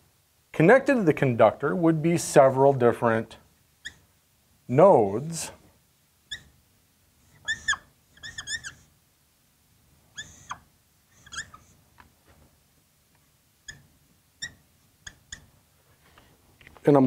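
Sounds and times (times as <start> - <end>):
marker squeaking on whiteboard: 3.8 - 4.1, 6.3 - 6.6, 7.3 - 8.9, 10.1 - 11.8, 13.6 - 15.6.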